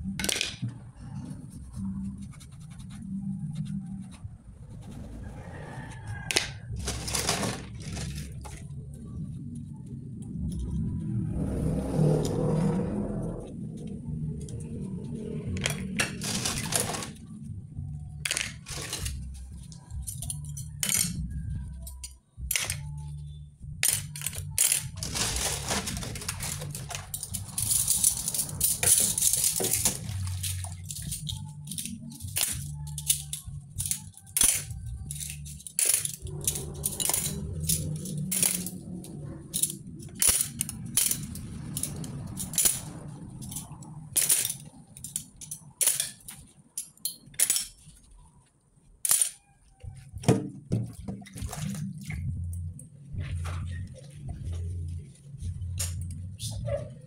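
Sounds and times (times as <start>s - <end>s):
metal utensils clinking: 15.6s - 17.2s, 18.3s - 19.2s, 20.0s - 21.2s, 23.8s - 38.8s, 39.5s - 48.0s, 49.0s - 49.4s.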